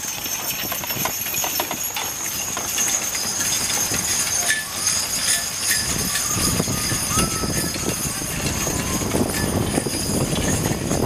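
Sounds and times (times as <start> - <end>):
harness jingling: 0.0 - 11.0
hooves clip-clopping on turf: 0.0 - 11.0
wooden wagon clicks: 0.0 - 11.0.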